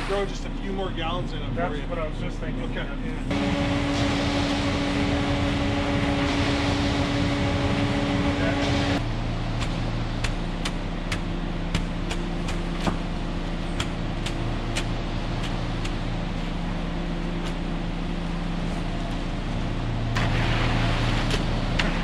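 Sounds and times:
engine running: 0:00.0 - 0:22.0
rush of noise: 0:03.3 - 0:09.3.

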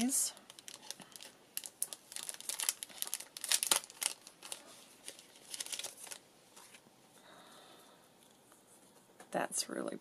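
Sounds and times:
plastic packet crinkling: 0:00.0 - 0:06.8.

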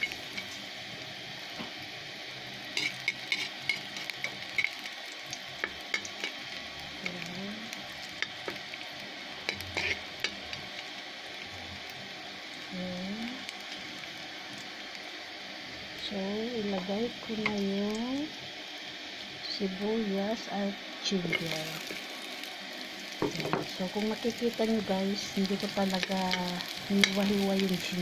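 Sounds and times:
garlic sizzling in oil: 0:00.0 - 0:28.0
spatula stirring in wok: 0:02.7 - 0:04.8, 0:09.4 - 0:10.7.

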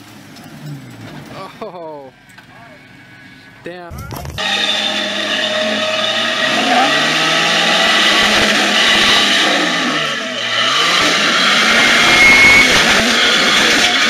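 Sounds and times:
engine revving under load: 0:04.4 - 0:14.0.

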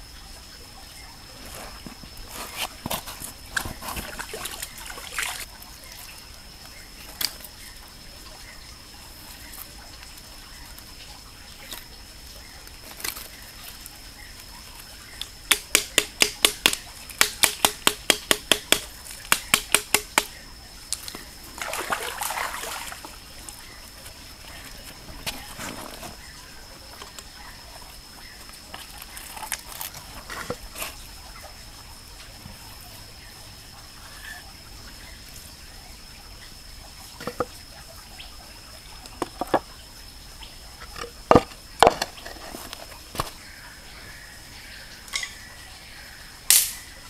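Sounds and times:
stalks rustling: 0:20.9 - 0:31.1.

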